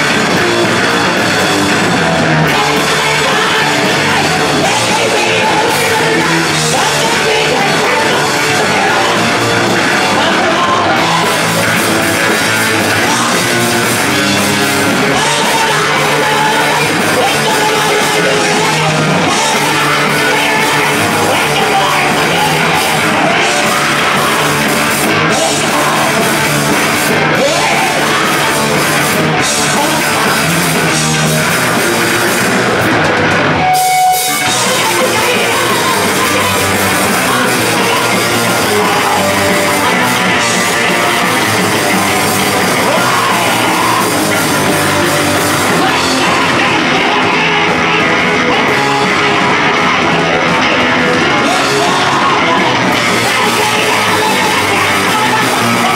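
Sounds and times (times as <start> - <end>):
drum kit: 0.0 - 55.9
electric guitars: 0.0 - 55.9
singer shouting into microphone: 14.6 - 26.6, 33.6 - 55.9.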